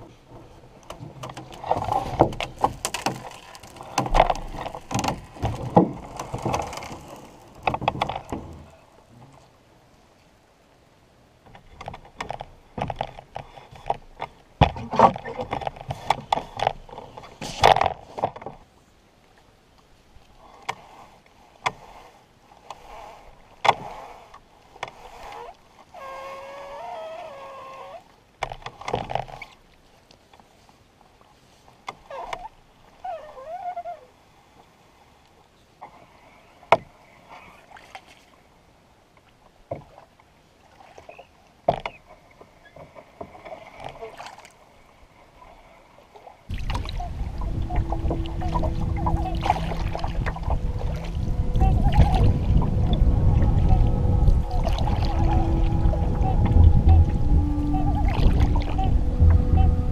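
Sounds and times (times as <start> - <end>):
water sloshing: 0.0 - 9.5, 39.2 - 59.9
short wavering pitched sounds: 46.5 - 59.9.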